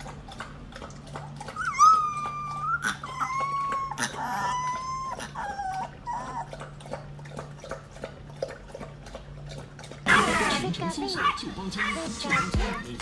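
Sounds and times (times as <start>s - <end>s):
puppy howling: 1.4s - 6.6s.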